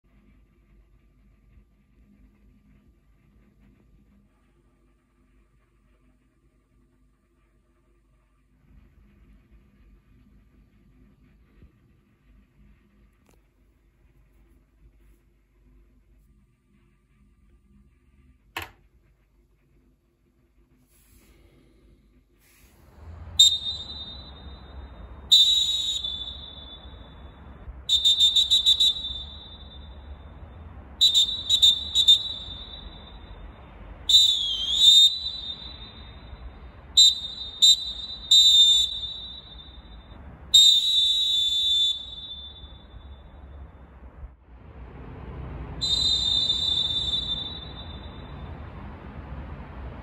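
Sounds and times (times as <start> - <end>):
referee whistle blasts: 23.3 - 30.3, 31.0 - 33.4, 34.1 - 43.5, 45.8 - 48.5.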